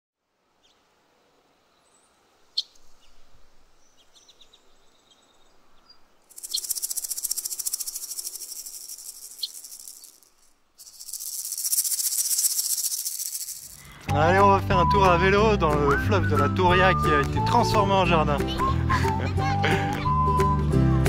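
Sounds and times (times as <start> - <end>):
faint bird chirps: 1.6 - 14.1
fast shaker rhythm music: 6.3 - 20.1.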